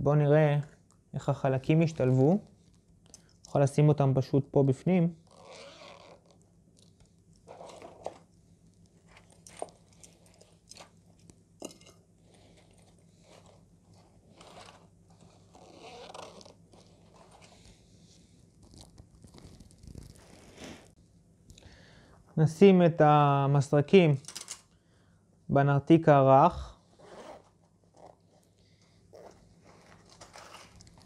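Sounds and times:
fabric rustling: 12.2s - 21.0s, 27.0s - 31.0s.

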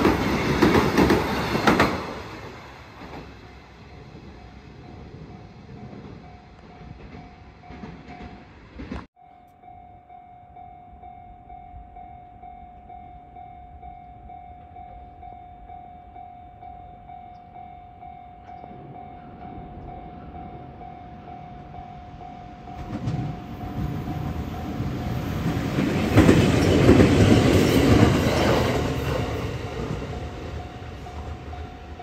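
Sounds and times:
electric train rumbling: 0.0s - 32.0s
level crossing warning bell: 9.1s - 32.0s.

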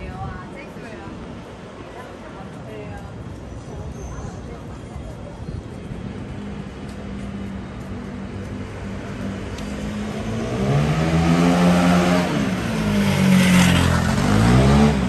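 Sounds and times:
vehicle engine revving: 9.4s - 15.0s.

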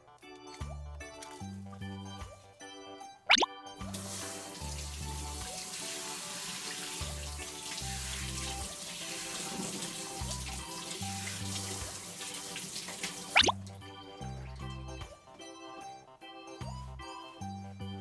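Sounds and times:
children's background music: 0.0s - 18.0s
tap water running into basin: 3.9s - 13.8s.

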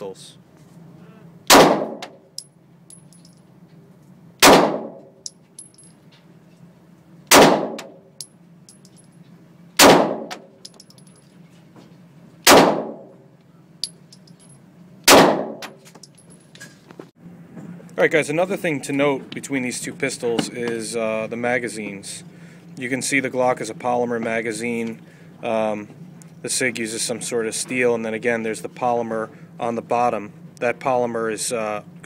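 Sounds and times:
pistol shots echoing indoors: 4.4s - 5.0s, 7.3s - 8.0s, 9.8s - 10.4s, 12.5s - 13.1s, 15.1s - 15.7s.

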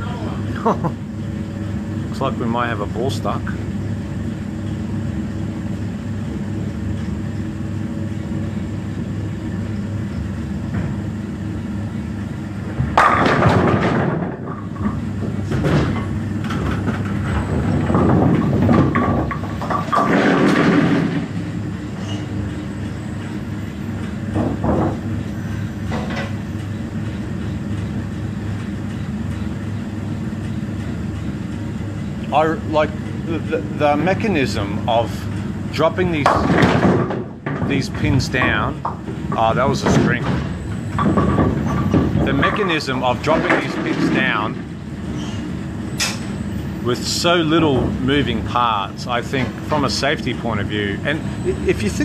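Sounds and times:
pinsetter machinery running: 0.0s - 52.0s
bowling pins clattering: 12.7s - 21.6s, 35.8s - 44.8s, 47.4s - 48.4s.

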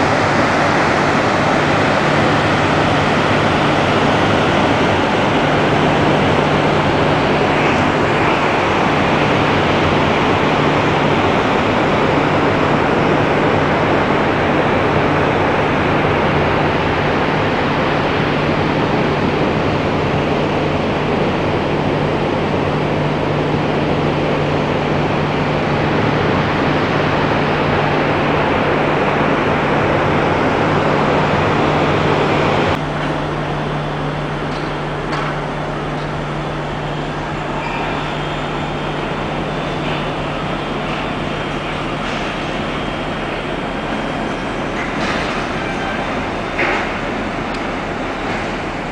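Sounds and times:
low machinery hum: 0.0s - 48.9s.

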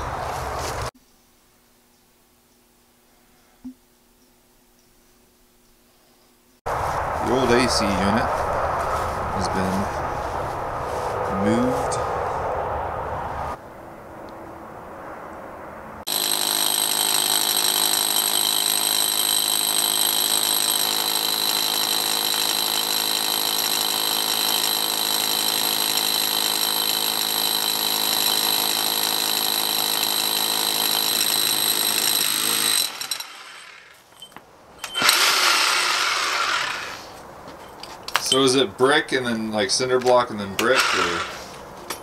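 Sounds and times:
rotary hammer boring into brick: 16.1s - 37.0s, 40.6s - 41.4s.

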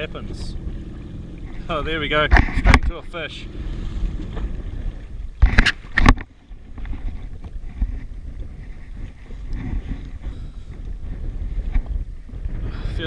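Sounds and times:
jet ski idling: 0.0s - 5.7s
wind buffeting microphone: 0.0s - 13.0s.

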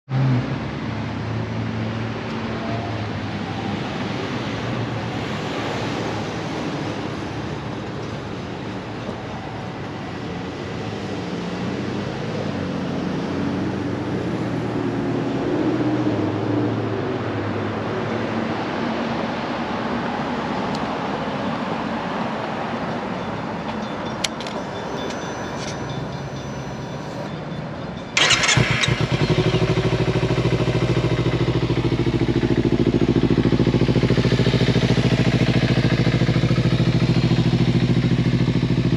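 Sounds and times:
traffic: 0.0s - 38.9s
wind: 0.0s - 38.9s
motorcycle starter cranking: 28.2s - 29.9s
motorcycle engine idling: 28.2s - 38.9s.

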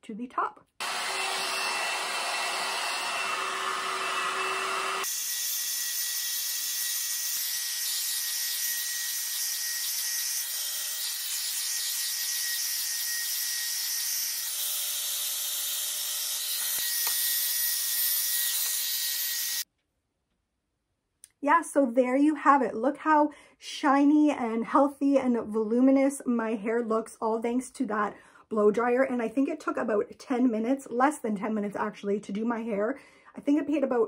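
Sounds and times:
hot-air brush dryer running: 0.8s - 5.8s, 15.0s - 19.6s.

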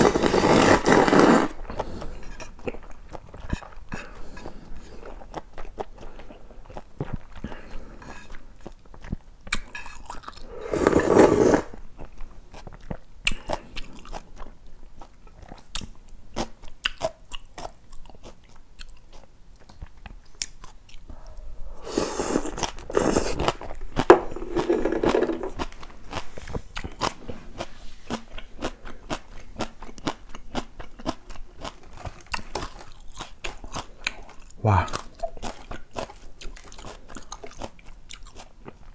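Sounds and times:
slurping noodles: 0.0s - 2.2s, 10.4s - 11.8s, 21.7s - 23.6s, 24.2s - 25.6s
crunchy chewing: 22.0s - 38.9s.

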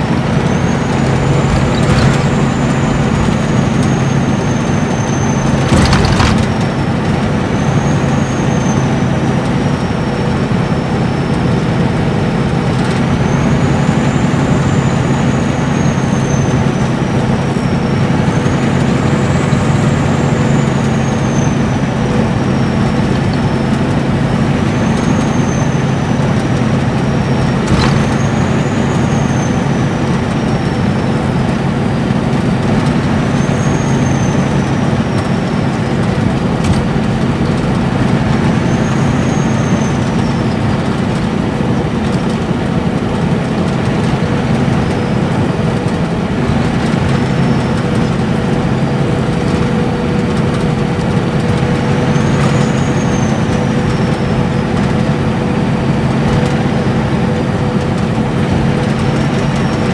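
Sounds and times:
diesel coach engine cruising: 0.0s - 59.9s
tyre and road noise: 0.0s - 59.9s
turbocharger whistle: 33.0s - 36.0s, 38.0s - 40.6s, 51.7s - 55.3s.

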